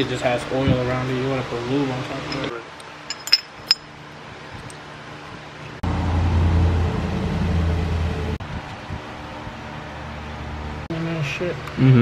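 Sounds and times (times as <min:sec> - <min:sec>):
light metallic clinks: 0:03.1 - 0:03.9
low mechanical rumble: 0:03.1 - 0:11.8.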